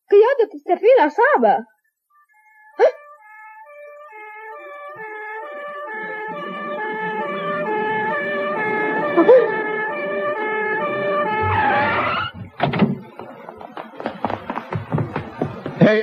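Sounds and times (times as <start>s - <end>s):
two-tone police siren: 2.1s - 12.6s.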